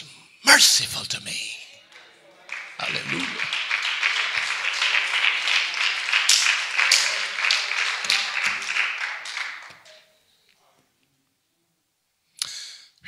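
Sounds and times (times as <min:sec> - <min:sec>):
congregation applauding: 0:01.9 - 0:10.1.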